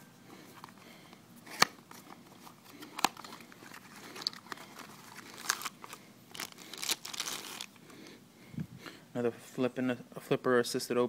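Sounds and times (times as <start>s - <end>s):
paper crinkling: 1.6s - 7.8s.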